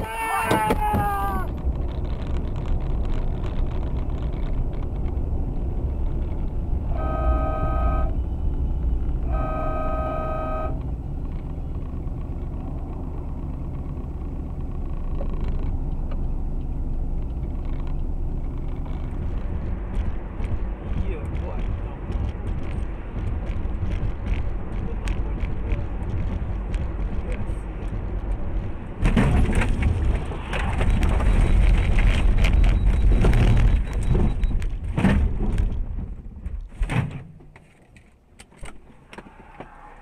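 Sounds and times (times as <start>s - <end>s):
vehicle rumble on road: 0.0s - 40.0s
car horn blasts: 6.8s - 8.2s, 9.2s - 10.9s.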